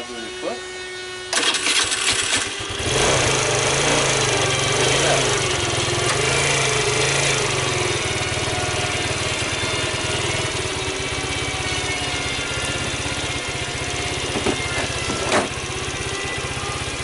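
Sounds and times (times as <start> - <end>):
electric starter cranking: 1.3 - 8.3
scooter engine revving and idling: 1.3 - 17.0.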